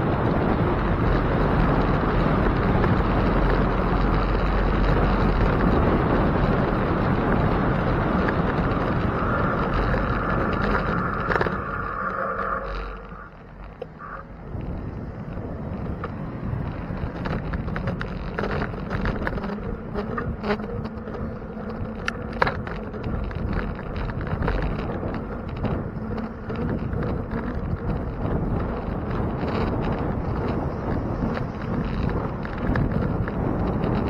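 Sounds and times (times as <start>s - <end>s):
bicycle riding rumble: 0.0s - 34.0s
small rattling clicks: 14.6s - 34.0s.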